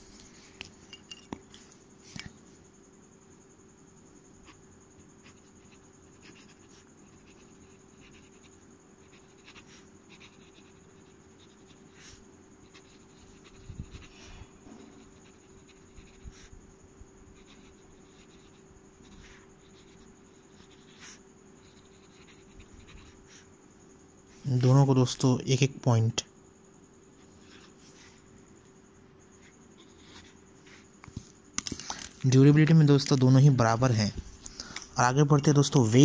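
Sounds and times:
pen nib scratching on paper: 5.2s - 14.1s, 14.8s - 16.5s, 17.4s - 23.3s.

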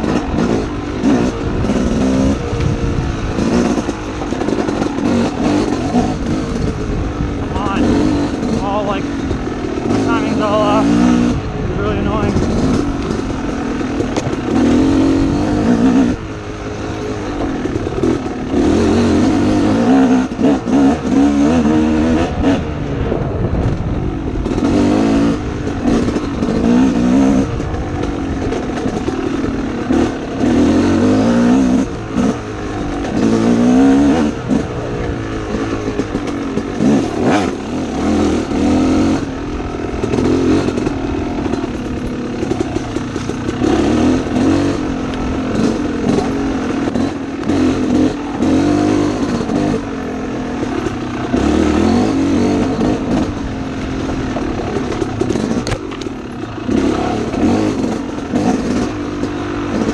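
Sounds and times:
dirt bike engine revving: 0.0s - 59.9s
bike knocks and rattles: 50.6s - 59.9s.

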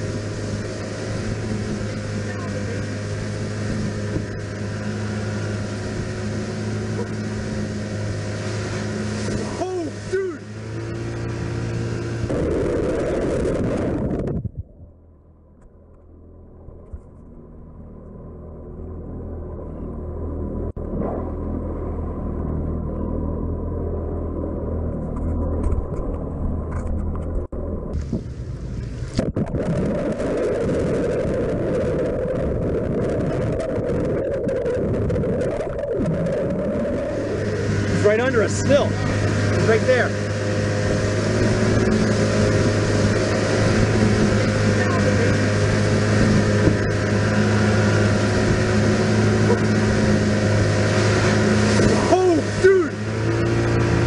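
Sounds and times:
wind on microphone: 0.0s - 9.7s, 10.6s - 15.0s, 25.1s - 54.0s
water rushing past hull: 0.0s - 15.1s, 16.4s - 54.0s
boat motor running: 0.0s - 54.0s
dense underwater rushing: 0.0s - 54.0s.

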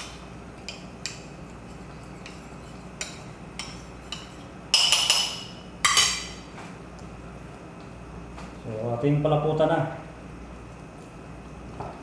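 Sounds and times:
metal spoon clinking against bowl: 3.0s - 6.4s.

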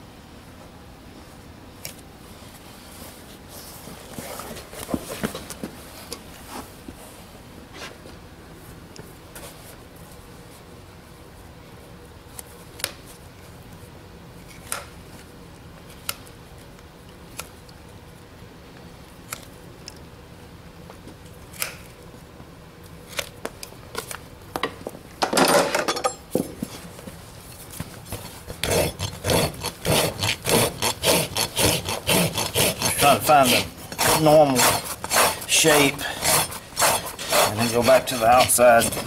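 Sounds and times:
rasp scraping hoof: 28.1s - 39.0s.

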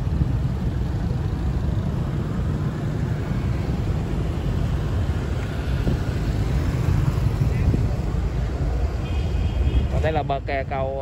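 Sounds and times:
scooter and car traffic rumble: 0.0s - 11.0s
wind on microphone: 5.3s - 8.6s.

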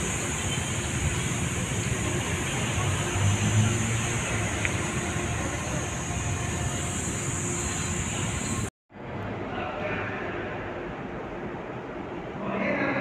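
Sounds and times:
vehicle engine: 0.0s - 9.4s
city traffic: 0.0s - 13.0s.

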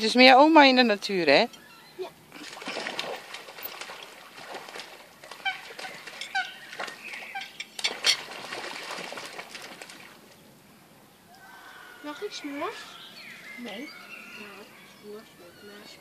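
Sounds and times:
wings and feet splashing water: 2.3s - 10.4s.

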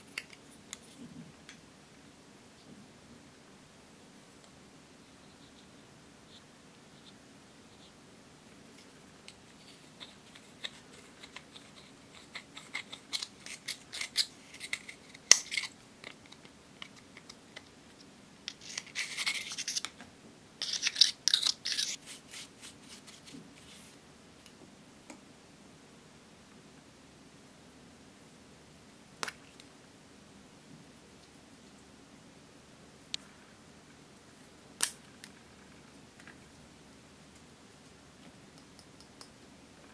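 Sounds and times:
metal spatula scraping powder: 20.6s - 23.1s.

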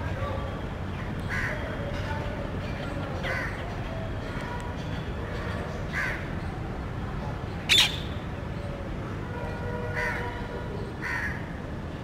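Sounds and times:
harsh bird calls: 7.7s - 8.2s.

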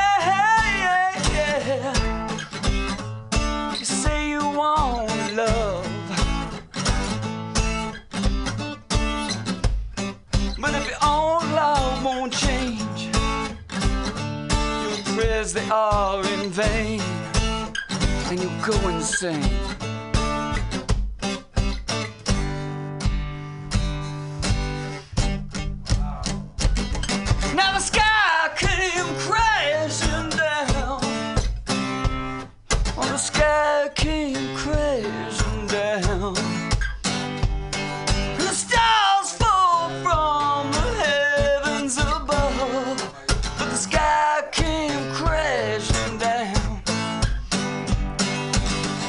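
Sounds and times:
man singing: 0.0s - 2.4s, 3.6s - 6.5s, 10.5s - 13.5s, 14.6s - 19.8s, 27.4s - 31.4s, 32.9s - 36.9s, 38.2s - 47.2s
acoustic guitar strumming: 0.0s - 49.0s.

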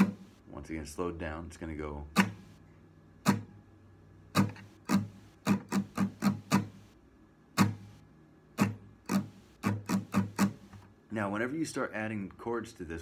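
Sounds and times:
muted guitar strums: 0.0s - 0.4s, 2.1s - 2.5s, 3.2s - 3.6s, 4.3s - 6.9s, 7.5s - 10.9s.

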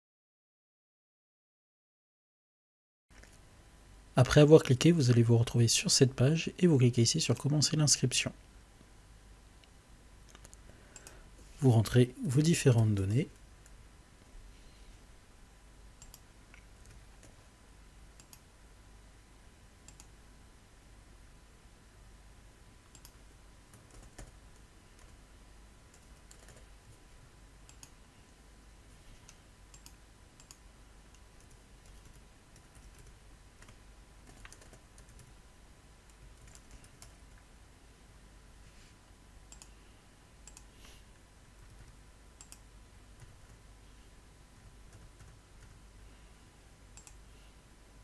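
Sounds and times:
faint electrical hum: 3.1s - 48.0s
keyboard and mouse clicking: 10.3s - 11.2s, 16.0s - 17.4s, 18.2s - 18.5s, 19.9s - 20.1s, 22.9s - 24.4s, 25.9s - 26.6s, 27.7s - 28.0s, 29.2s - 35.3s, 36.1s - 37.2s, 39.5s - 39.7s, 40.4s - 40.7s, 41.6s - 43.6s, 47.0s - 47.2s.

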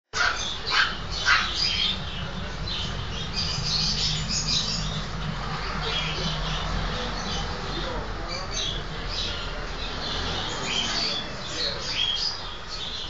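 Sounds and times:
puppy yapping: 0.2s - 1.6s.

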